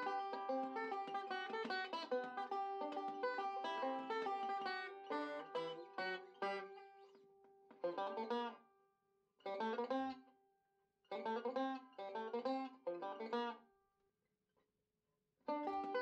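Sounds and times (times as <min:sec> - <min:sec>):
plucked string instrument music: 0:00.0 - 0:08.6, 0:09.4 - 0:10.2, 0:11.1 - 0:13.6, 0:15.5 - 0:16.0.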